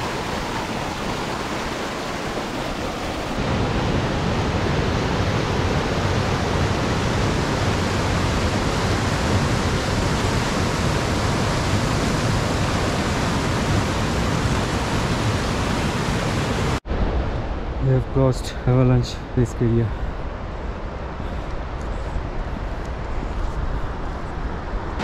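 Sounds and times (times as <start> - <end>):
fast river rushing: 0.0 - 16.8.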